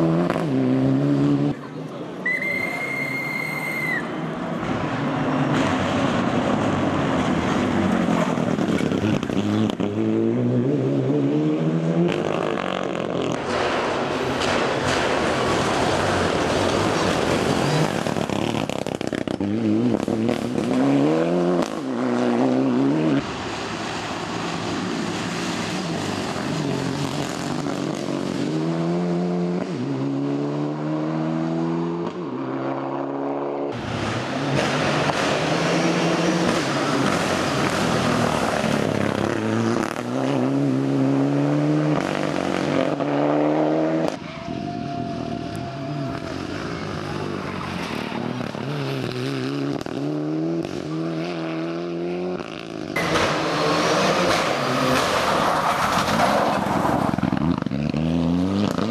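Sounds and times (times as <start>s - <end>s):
car engine accelerating hard: 4.5s - 58.9s.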